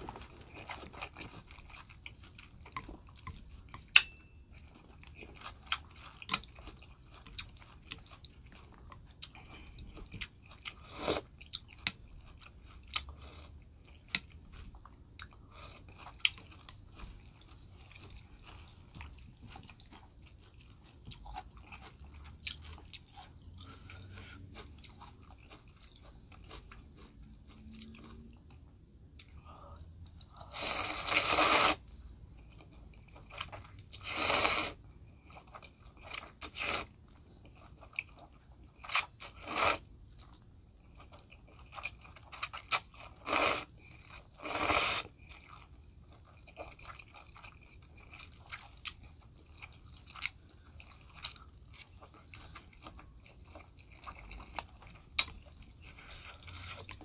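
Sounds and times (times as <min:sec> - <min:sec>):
wet chewing: 0:00.0 - 0:28.6, 0:29.2 - 0:57.0
slurping noodles: 0:30.5 - 0:31.8, 0:34.0 - 0:34.8, 0:36.4 - 0:36.9, 0:39.2 - 0:39.8, 0:43.0 - 0:43.7, 0:44.4 - 0:45.1.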